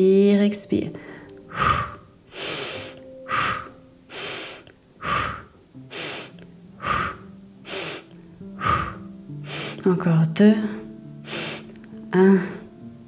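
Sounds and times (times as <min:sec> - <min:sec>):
woman breathing sharply: 0:01.0 - 0:09.8, 0:11.2 - 0:11.8.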